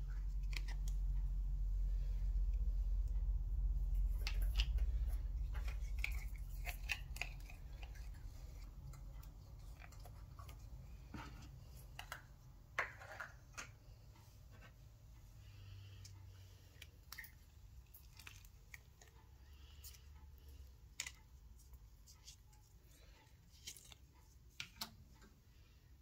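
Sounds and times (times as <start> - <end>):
slime squelching: 3.9 - 12.0, 16.0 - 22.4.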